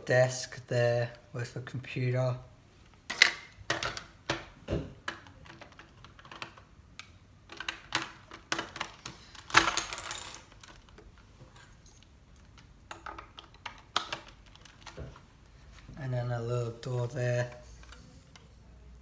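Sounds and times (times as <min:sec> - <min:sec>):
plastic bricks clicking and clattering: 0:05.0 - 0:11.2, 0:12.0 - 0:15.2.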